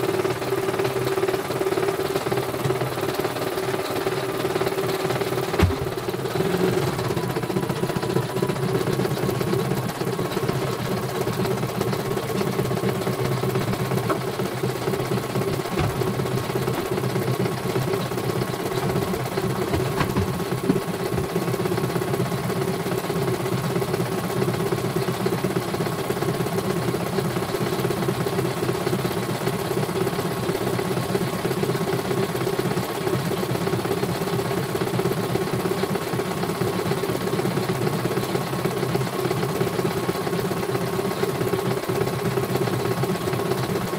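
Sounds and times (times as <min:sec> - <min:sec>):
embroidery machine running: 0:00.0 - 0:29.6.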